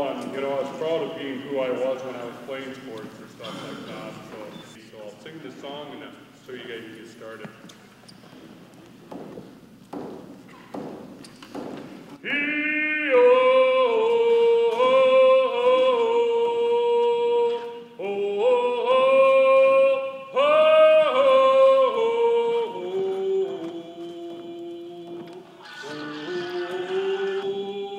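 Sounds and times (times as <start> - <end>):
man singing long held notes: 12.2 - 27.9.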